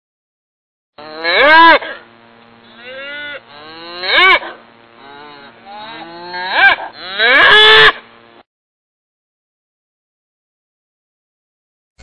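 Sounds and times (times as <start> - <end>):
cows mooing: 1.0 - 2.0, 2.6 - 8.0.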